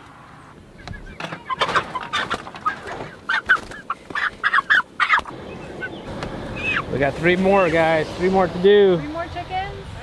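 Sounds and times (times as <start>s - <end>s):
chickens squawking: 0.1s - 7.1s.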